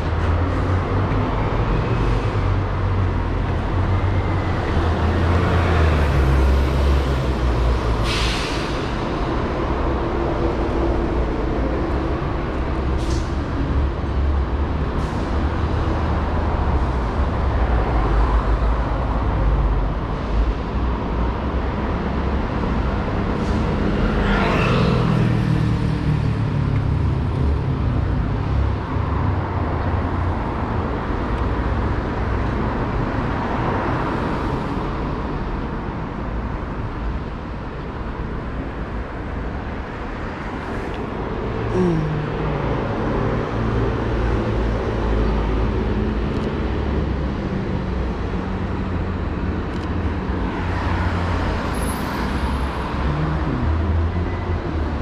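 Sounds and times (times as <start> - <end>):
low traffic rumble: 0.0 - 55.0
vehicles passing: 0.0 - 55.0
engine revving: 52.9 - 55.0.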